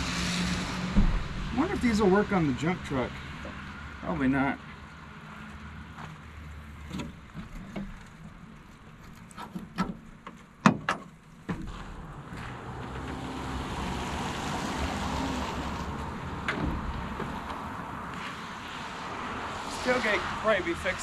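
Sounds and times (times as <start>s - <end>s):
broad rushing noise: 0.0s - 3.2s, 11.7s - 21.0s
knocks and clanks of tailgate: 10.6s - 11.9s, 16.4s - 17.4s.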